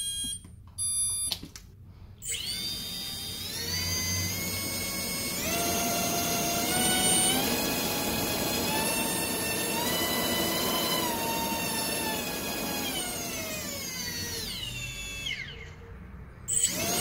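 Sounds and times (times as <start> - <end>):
short electronic beeps: 0.0 - 1.4
brushless motor whine: 2.3 - 15.8, 16.5 - 17.0.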